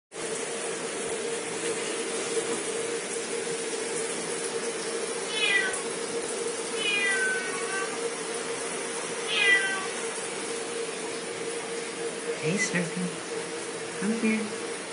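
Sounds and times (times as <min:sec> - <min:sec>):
cat meowing: 0:05.3 - 0:05.9, 0:06.8 - 0:08.1, 0:09.3 - 0:10.0.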